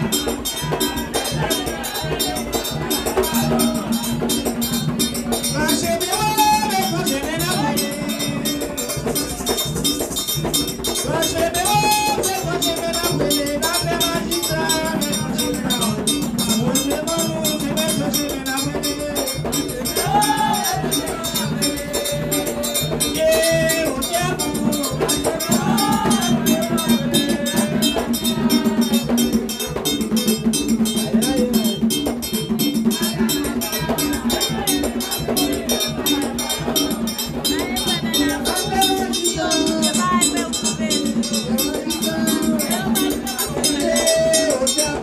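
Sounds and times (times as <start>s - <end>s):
drums: 0.0s - 45.0s
struck metal bell: 0.0s - 45.0s
woman singing into a microphone: 37.3s - 45.0s.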